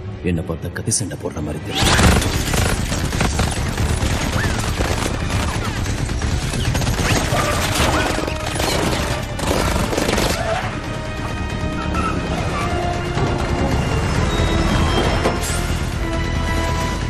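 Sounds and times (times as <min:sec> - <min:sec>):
action film score: 0:00.0 - 0:17.0
rapid gunfire: 0:01.9 - 0:10.7.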